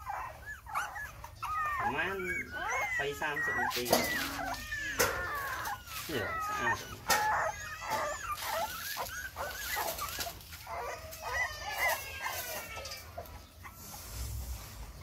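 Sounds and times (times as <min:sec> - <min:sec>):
puppies whining and squeaking: 0:00.0 - 0:15.0.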